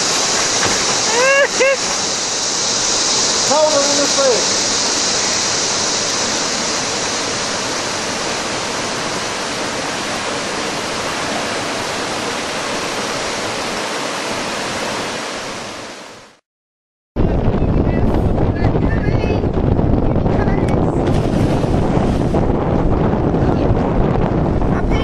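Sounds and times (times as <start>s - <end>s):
creek water pouring over stones: 0.0s - 8.6s.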